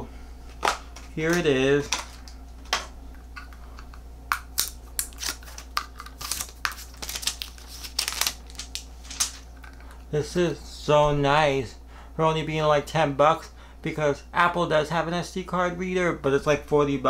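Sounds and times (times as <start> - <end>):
packaging clicks and rustles: 4.6 - 9.9.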